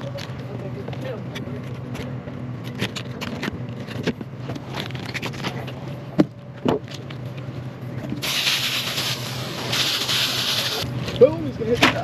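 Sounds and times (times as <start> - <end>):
engine running steadily: 0.0 - 12.0.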